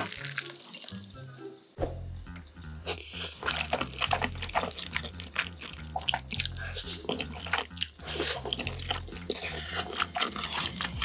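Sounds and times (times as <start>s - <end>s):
noodles slurped and chewed: 2.8s - 11.0s.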